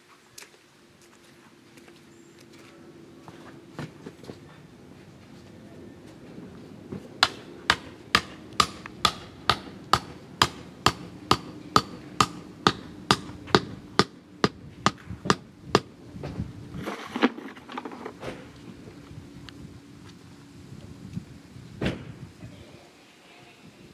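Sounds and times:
hammer blows on stake: 7.2s - 15.9s
scraping and rustling in dirt: 16.3s - 20.4s.

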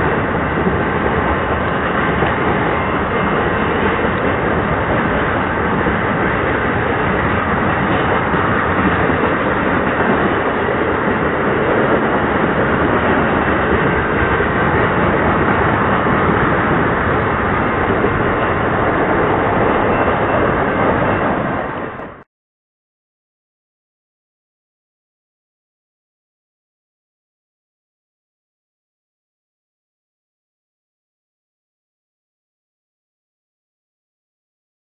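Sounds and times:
train wheels on rail: 0.0s - 22.3s.

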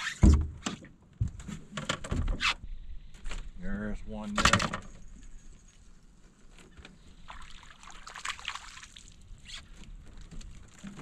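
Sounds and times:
water splashing and sloshing: 5.7s - 11.0s.

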